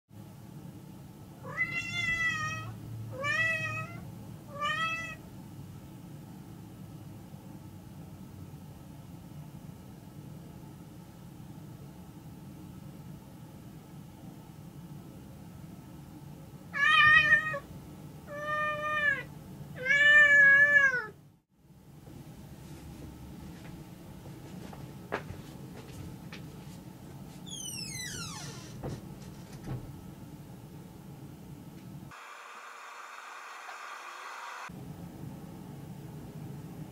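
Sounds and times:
cat meowing: 1.4 - 5.2, 16.8 - 17.6, 18.3 - 21.2.

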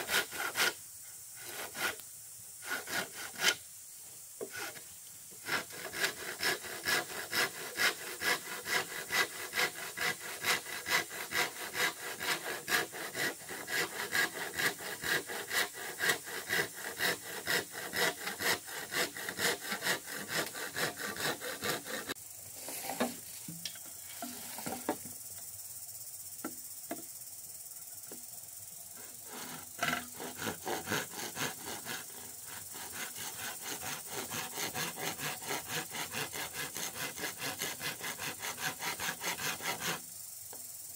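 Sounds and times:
hand saw cutting bamboo: 0.0 - 0.8, 1.4 - 2.0, 2.6 - 3.6, 4.4 - 4.8, 5.4 - 23.2, 29.0 - 40.0.

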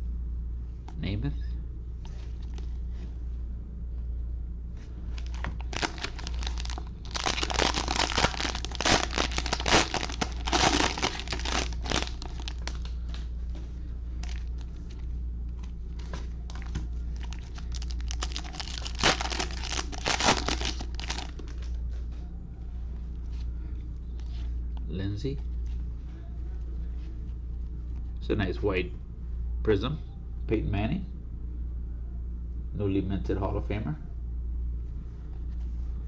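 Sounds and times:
plastic wrapper crinkling and tearing: 5.2 - 13.0, 14.2 - 14.7, 16.5 - 21.8.

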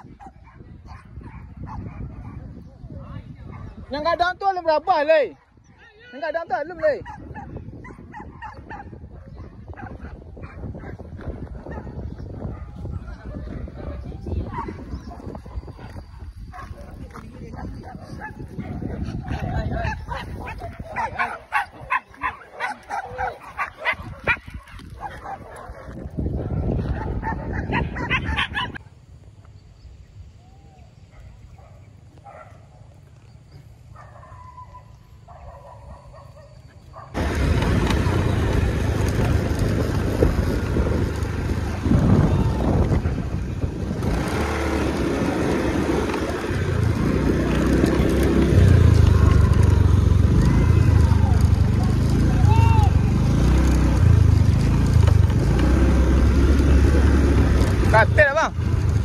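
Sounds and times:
dogs yipping: 0.0 - 2.6, 7.0 - 28.9, 33.9 - 38.5
road noise on rough road: 0.0 - 59.0
vehicle engine running: 37.2 - 59.0.

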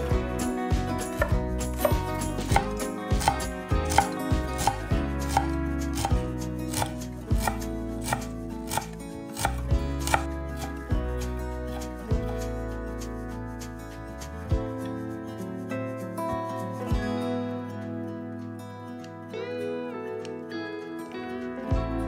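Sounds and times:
background music: 0.0 - 22.0
knife chopping on cutting board: 1.2 - 10.7.

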